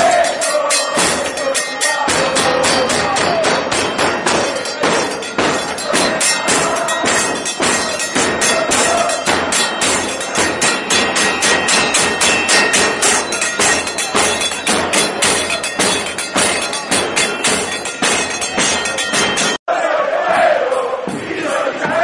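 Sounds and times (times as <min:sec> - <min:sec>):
crowd singing: 0:00.0 - 0:22.0
bass drums beating: 0:00.9 - 0:19.6.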